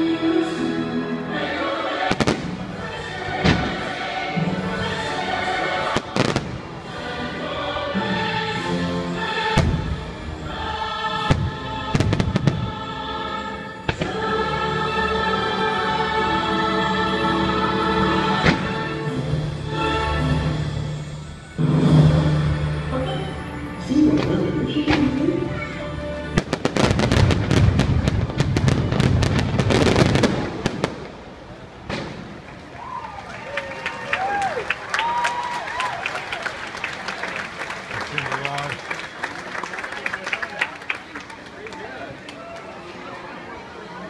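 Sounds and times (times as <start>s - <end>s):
choir singing: 0.0s - 27.3s
orchestral music: 0.0s - 30.7s
fireworks bangs: 2.0s - 4.4s, 5.8s - 6.8s, 11.2s - 12.8s, 13.8s - 14.4s, 26.3s - 32.7s.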